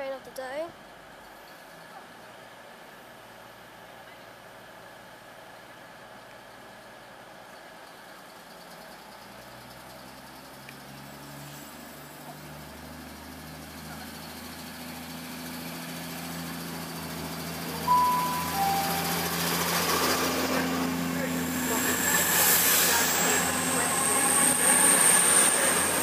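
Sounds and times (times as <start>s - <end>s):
diesel train accelerating past: 9.2s - 26.0s
two-tone train horn: 17.7s - 25.2s.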